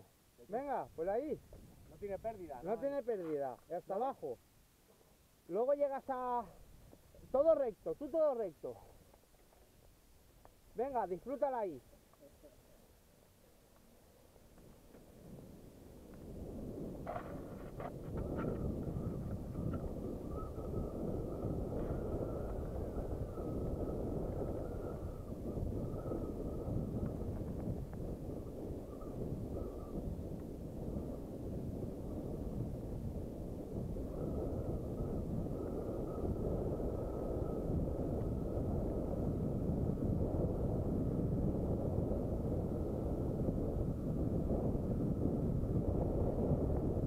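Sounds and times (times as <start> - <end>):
faint steady whine: 0.0 - 47.0
wind buffeting microphone: 14.5 - 47.0
bike tyres rumbling over gravel: 14.6 - 29.4.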